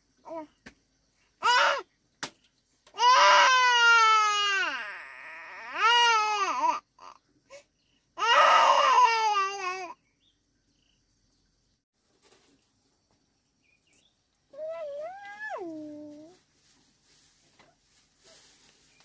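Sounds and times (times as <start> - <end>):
toddler crying: 3.0 - 7.2, 8.2 - 10.0.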